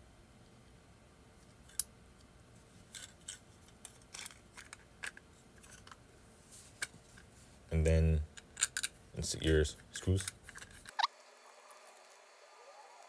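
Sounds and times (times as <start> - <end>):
plastic parts clicking: 3.0 - 6.0, 8.4 - 8.9.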